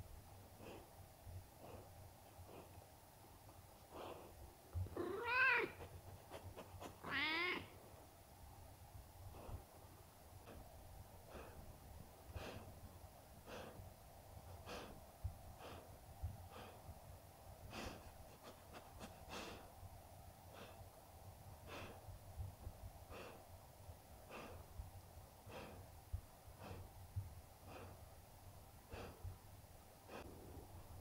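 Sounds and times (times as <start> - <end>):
low steady hum: 0.0 - 31.0
dog breathing softly: 0.5 - 4.9, 9.2 - 19.8, 20.4 - 21.0, 21.6 - 23.6, 24.2 - 31.0.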